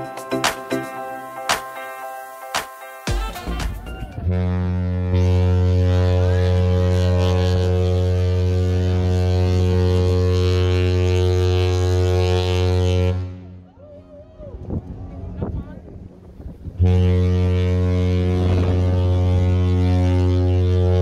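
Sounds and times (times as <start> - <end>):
ship horn long low blast: 3.2 - 13.7, 16.6 - 21.0.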